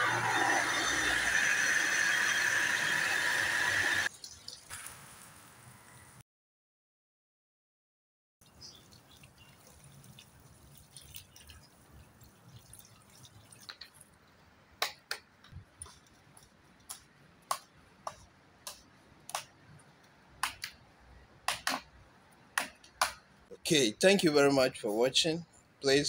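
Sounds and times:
water splashing onto ground: 4.1 - 5.4, 8.4 - 14.2.

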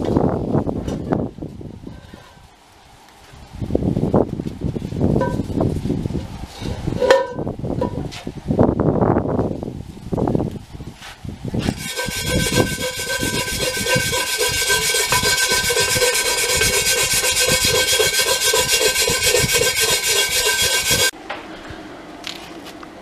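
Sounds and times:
power wire brush scouring metal: 11.6 - 21.1.

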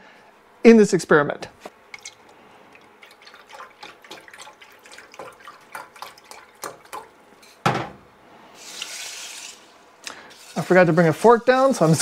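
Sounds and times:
liquid pouring and gurgling: 2.0 - 7.2.

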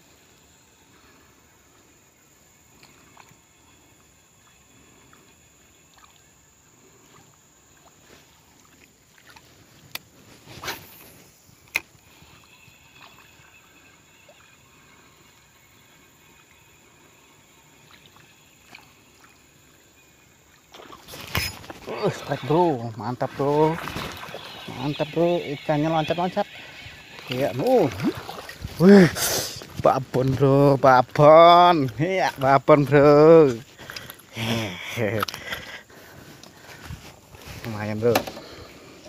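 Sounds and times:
fishing rod handling ticks: 8.6 - 14.0, 26.2 - 28.6, 33.6 - 34.3, 35.1 - 38.6
fishing reel winding: 23.9 - 27.9.

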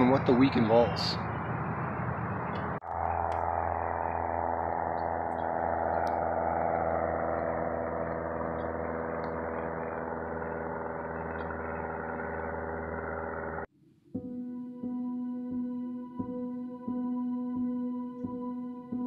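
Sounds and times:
propeller airplane engine drone: 0.0 - 13.7.

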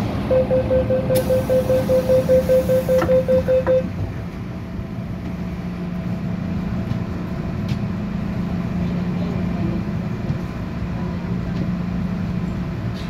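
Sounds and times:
train running hum: 0.0 - 13.0
rapid high beeps: 0.3 - 3.9.

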